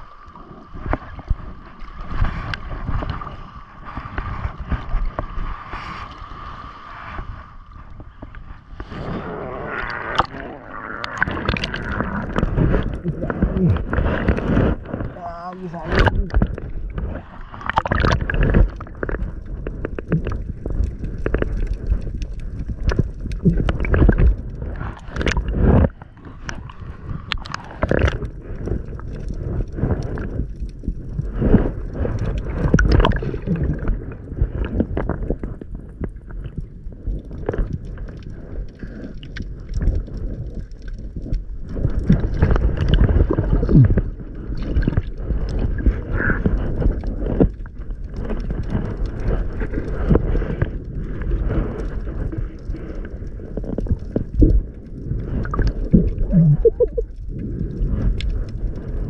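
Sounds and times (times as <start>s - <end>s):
seawater sloshing and gurgling: 0.0s - 59.0s
muffled low rumble: 6.9s - 39.0s, 39.7s - 59.0s
water knocking against camera: 55.5s - 57.1s.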